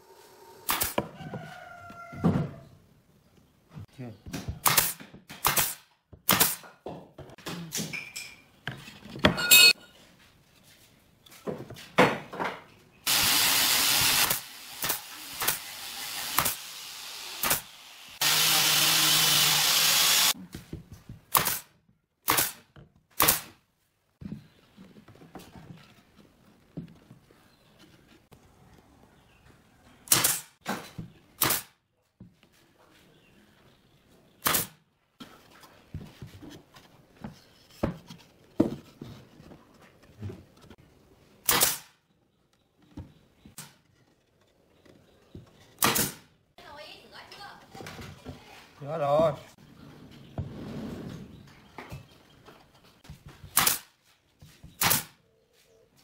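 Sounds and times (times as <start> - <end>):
cordless drill running: 13.1 - 20.4.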